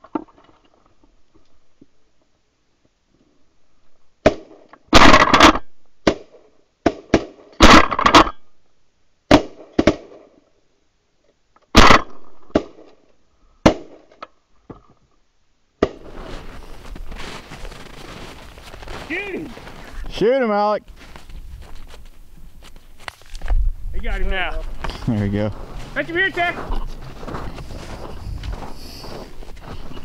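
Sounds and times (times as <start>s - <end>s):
shotgun blasts: 4.2s - 8.3s, 11.7s - 12.9s.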